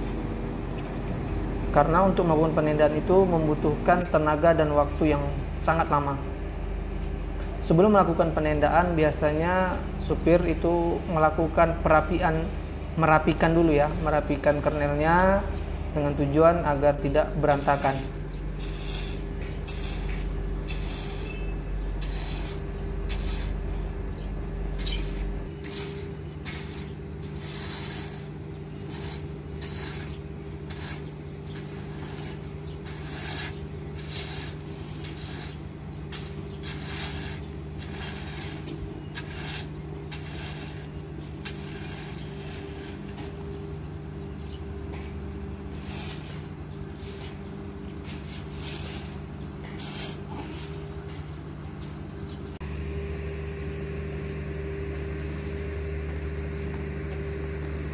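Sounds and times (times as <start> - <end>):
mechanical hum with deep rumble: 0.0 - 57.9
shovel scraping kernels in truck bed: 17.0 - 43.8, 44.9 - 51.2.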